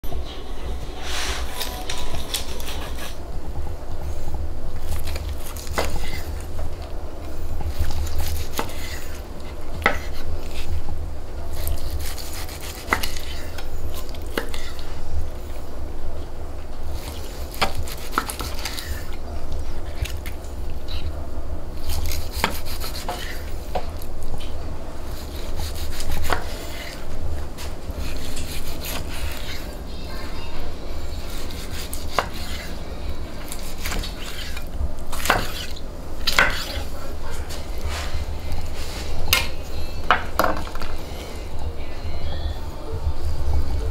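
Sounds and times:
knife cutting steak on board: 0:11.6 - 0:13.6, 0:22.0 - 0:23.5, 0:31.3 - 0:32.7, 0:33.4 - 0:36.8
low rumble: 0:40.9 - 0:43.9.

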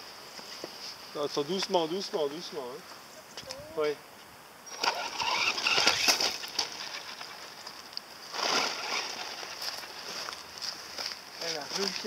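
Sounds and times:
tyres crunching gravel: 0:04.7 - 0:12.0.

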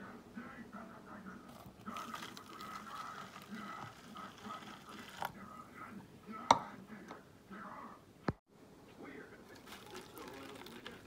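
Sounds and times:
water pouring from jug: 0:01.5 - 0:05.3, 0:09.6 - 0:11.0.

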